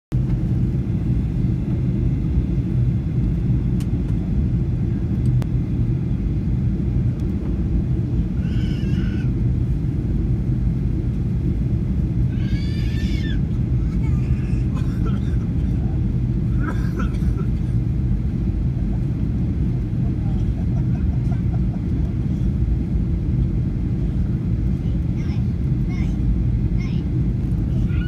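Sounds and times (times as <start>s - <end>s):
airplane cabin drone: 0.1s - 28.0s
constant hum: 0.1s - 28.0s
high-pitched voice-like cries: 8.4s - 9.3s, 12.3s - 15.1s.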